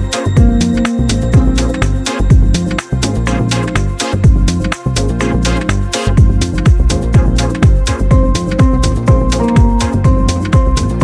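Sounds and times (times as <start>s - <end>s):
electronic music with beat: 0.0s - 11.0s
deep bass drum hits: 6.2s - 11.0s.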